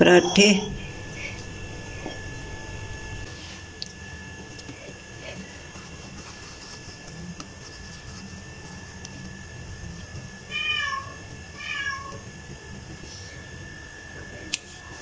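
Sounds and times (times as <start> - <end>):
faint high tone: 0.0 - 3.3
cat meowing: 10.5 - 12.2.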